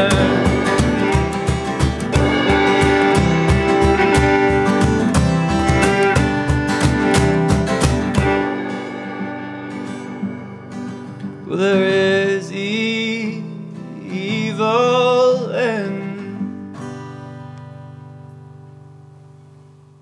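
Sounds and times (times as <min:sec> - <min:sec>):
fiddle playing sliding notes: 0:00.0 - 0:10.2
acoustic guitar strumming: 0:00.0 - 0:20.0.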